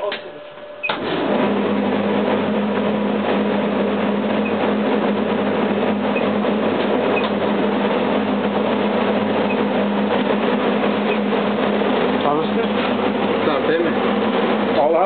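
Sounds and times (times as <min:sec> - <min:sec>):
loud mechanical drone: 0:00.8 - 0:15.0.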